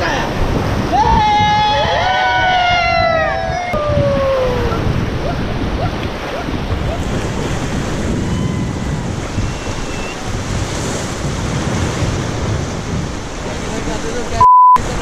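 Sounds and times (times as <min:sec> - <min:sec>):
whitewater rushing: 0:00.0 - 0:02.4
wind buffeting microphone: 0:00.0 - 0:15.0.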